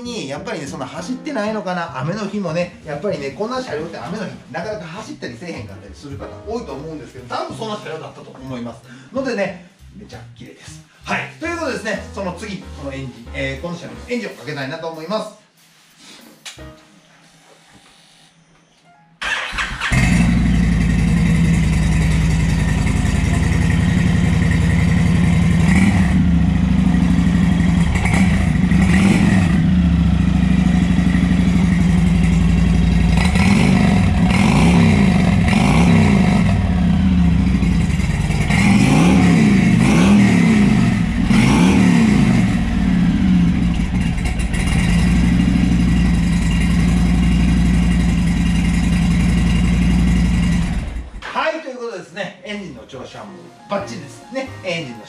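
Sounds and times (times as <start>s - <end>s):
motorcycle electric starter cranking: 19.2s - 20.8s
motorcycle engine idling and revving: 19.2s - 51.2s.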